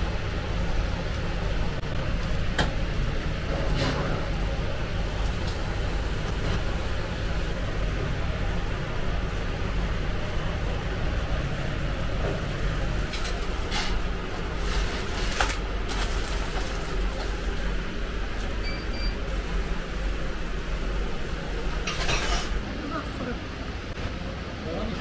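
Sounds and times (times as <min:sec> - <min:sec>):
crackles and clicks: 0:00.2 - 0:17.7
high beep: 0:18.6 - 0:19.2.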